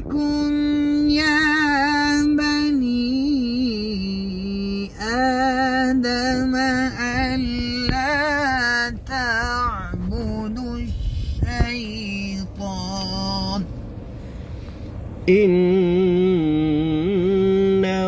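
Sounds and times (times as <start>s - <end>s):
car road noise rumble: 0.0s - 18.0s
man breathing: 10.9s - 11.4s, 13.7s - 15.2s.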